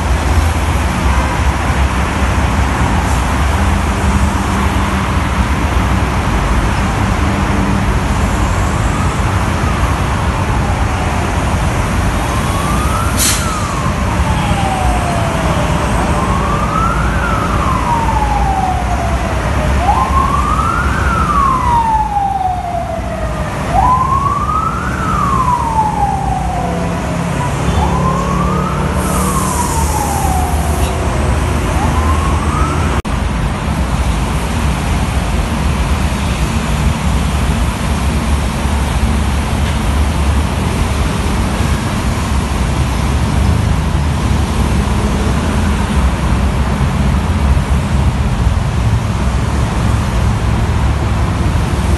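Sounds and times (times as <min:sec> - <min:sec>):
emergency siren wailing: 0:00.0 - 0:33.1
heavy traffic on wet road: 0:00.0 - 0:51.9.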